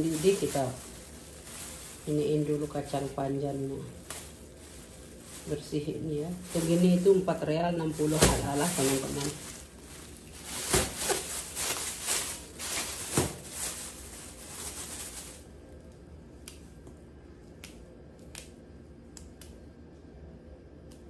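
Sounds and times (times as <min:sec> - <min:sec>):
plastic bag rustling: 0:00.0 - 0:15.8.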